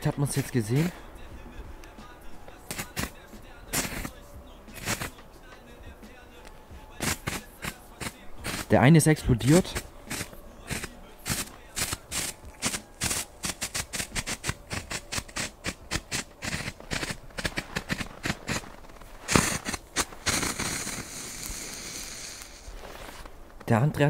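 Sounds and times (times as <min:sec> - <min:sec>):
hissing crackle: 0:00.0 - 0:01.2, 0:01.8 - 0:05.3, 0:06.4 - 0:23.7
strobe firework pops and crackles: 0:01.8 - 0:05.3, 0:06.9 - 0:23.6
loud crack: 0:02.6 - 0:05.3, 0:07.0 - 0:08.8, 0:09.5 - 0:22.7.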